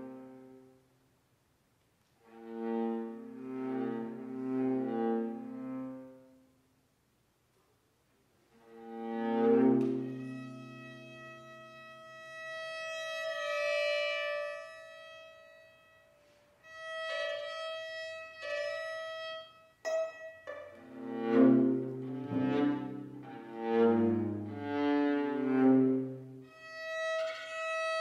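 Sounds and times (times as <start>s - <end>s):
string quartet playing: 2.3s - 6.0s, 8.6s - 14.9s, 19.9s - 28.0s.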